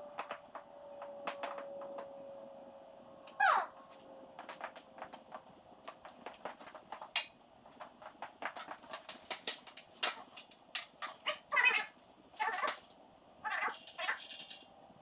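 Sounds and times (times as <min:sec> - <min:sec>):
footsteps and knocks on stepladder: 0:03.9 - 0:11.2.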